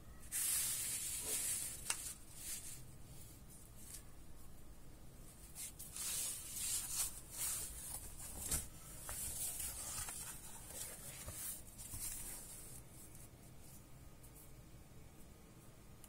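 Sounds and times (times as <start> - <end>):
cardboard pages rubbing and scraping: 5.6 - 12.8.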